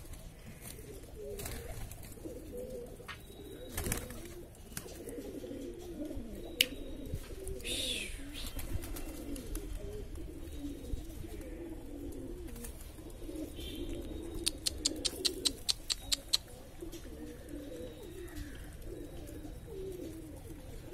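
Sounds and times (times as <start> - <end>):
pigeons cooing: 0.0 - 20.9
sharp clicks: 14.4 - 16.5.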